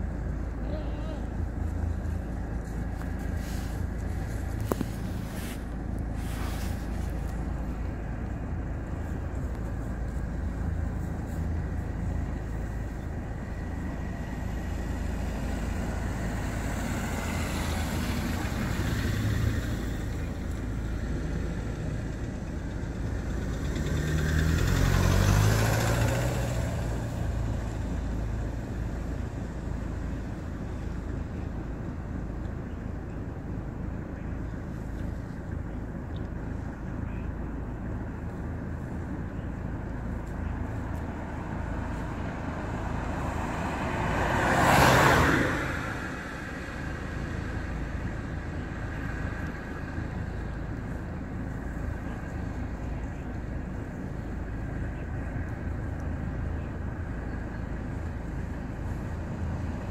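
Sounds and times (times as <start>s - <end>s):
loud vehicle passing: 0.0s - 31.3s, 40.0s - 59.9s
car engine idling: 0.0s - 59.9s
car driving past: 13.4s - 22.2s, 22.8s - 28.7s, 40.7s - 50.4s.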